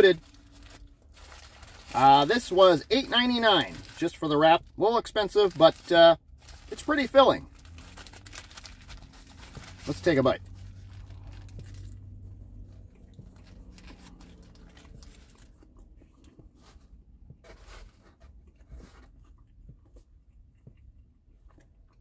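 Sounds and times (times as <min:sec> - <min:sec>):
person chewing food: 0:10.7 - 0:22.0.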